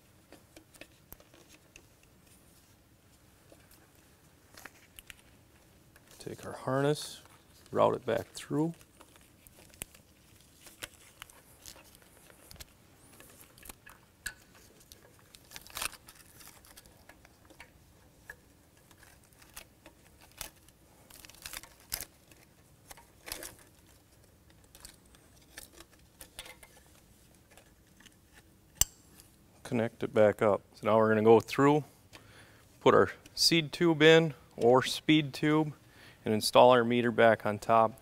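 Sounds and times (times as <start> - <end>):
wiring rustling: 0.2 - 28.5.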